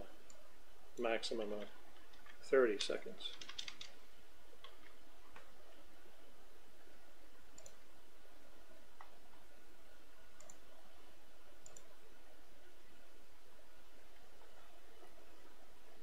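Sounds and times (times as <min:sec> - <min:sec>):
low hiss: 0:00.0 - 0:16.0
computer mouse clicking: 0:03.3 - 0:04.0, 0:07.5 - 0:07.8, 0:10.4 - 0:10.6, 0:11.6 - 0:11.9.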